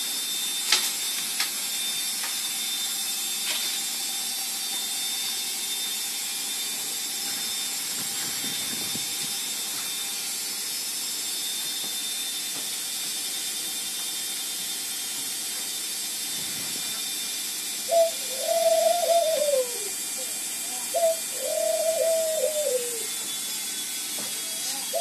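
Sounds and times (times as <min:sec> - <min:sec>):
bird cooing: 0:17.8 - 0:23.2, 0:24.4 - 0:25.0.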